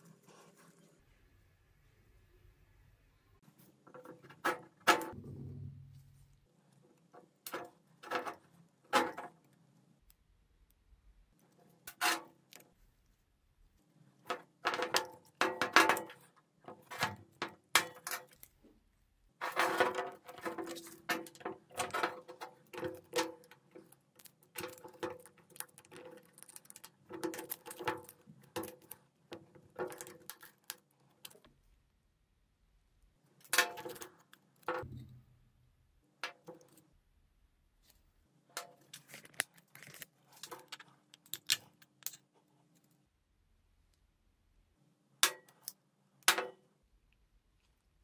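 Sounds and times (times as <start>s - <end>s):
metal parts clicking and knocking: 19.4s - 31.5s, 38.6s - 42.3s.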